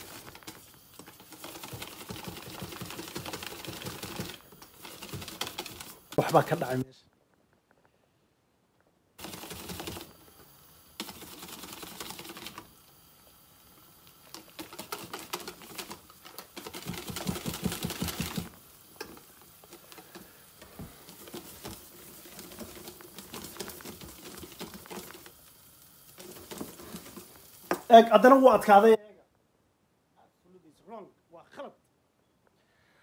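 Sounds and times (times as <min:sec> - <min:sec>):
batter slapping: 0:00.0 - 0:06.5, 0:09.2 - 0:12.9, 0:13.8 - 0:28.6
whisk clicking against metal bowl: 0:00.1 - 0:06.2, 0:14.3 - 0:20.2.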